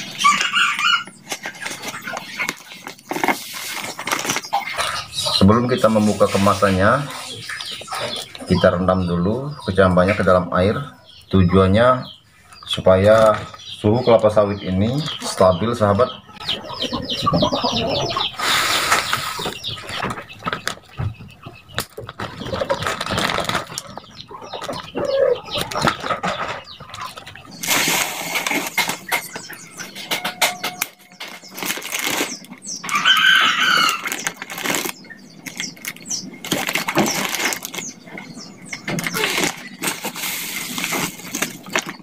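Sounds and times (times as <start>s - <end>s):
plastic bags crinkling: 0.0s - 6.8s, 21.8s - 24.9s, 27.1s - 29.5s, 31.0s - 42.0s.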